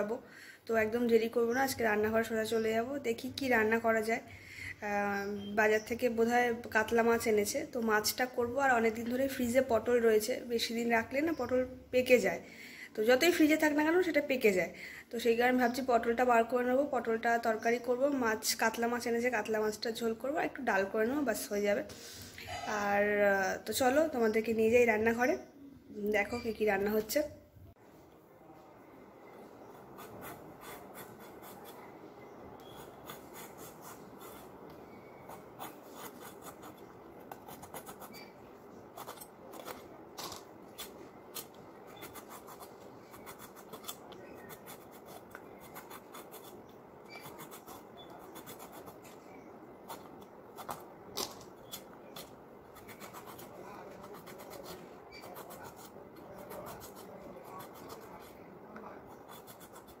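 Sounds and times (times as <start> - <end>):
gourds scraped against knife blade: 39.0 - 58.4.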